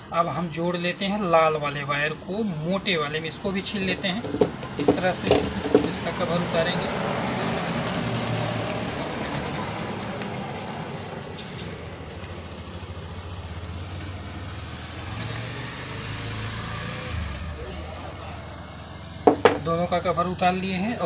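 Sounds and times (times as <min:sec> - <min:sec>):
passing road traffic rumble: 0:02.0 - 0:21.0.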